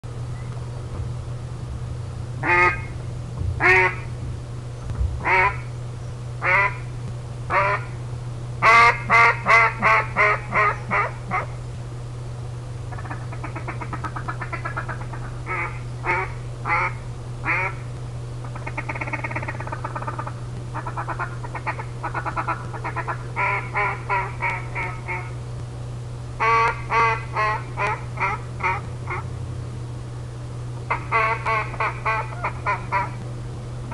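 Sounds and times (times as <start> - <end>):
steady low hum: 0.0 - 33.9
duck call rolling chatter: 2.4 - 2.9, 3.6 - 4.0, 6.4 - 6.8, 7.5 - 7.9, 8.6 - 11.5, 12.9 - 17.8, 18.5 - 25.4, 26.4 - 29.2, 30.9 - 33.2
duck call quacks: 2.4 - 3.0, 3.6 - 4.1, 5.2 - 5.7, 6.4 - 6.8, 7.5 - 7.9, 8.6 - 11.5, 12.9 - 17.8, 18.6 - 25.4, 26.4 - 29.2, 30.9 - 33.2.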